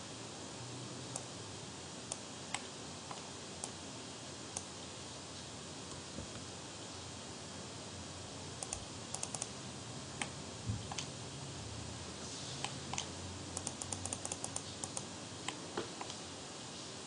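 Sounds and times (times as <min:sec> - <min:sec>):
steady hiss: 0:00.0 - 0:17.0
computer keyboard clicking: 0:08.6 - 0:09.5, 0:12.9 - 0:15.1.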